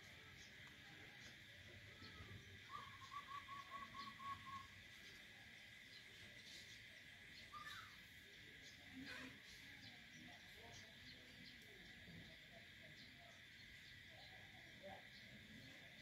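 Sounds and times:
bird calling: 0:01.2 - 0:05.2, 0:07.4 - 0:08.0.

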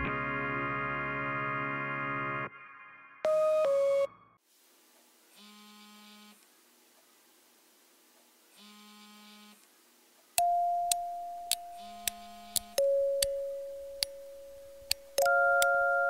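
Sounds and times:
sharp clicks: 0:10.4 - 0:13.4, 0:14.0 - 0:15.8
soft held chords: 0:10.4 - 0:16.0.

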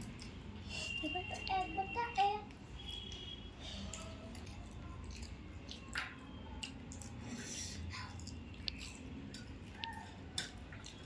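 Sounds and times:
people chewing food: 0:00.0 - 0:11.0.

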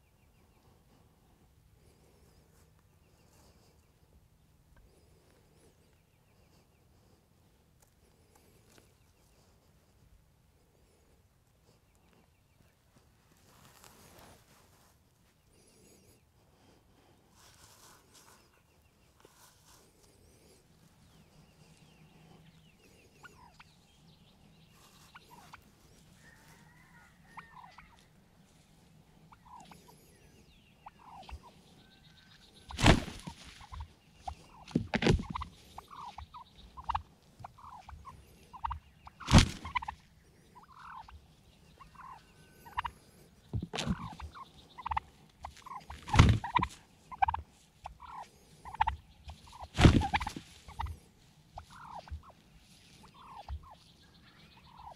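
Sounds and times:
turkeys gobbling: 0:23.2 - 0:24.1, 0:24.8 - 0:28.3, 0:28.9 - 0:54.9
soft short turkey calls: 0:24.7 - 0:28.2, 0:29.2 - 0:43.0, 0:43.6 - 0:50.9, 0:51.5 - 0:54.9.

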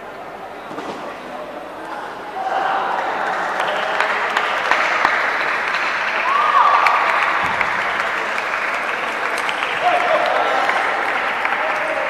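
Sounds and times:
crowd noise like applause: 0:02.3 - 0:12.0.

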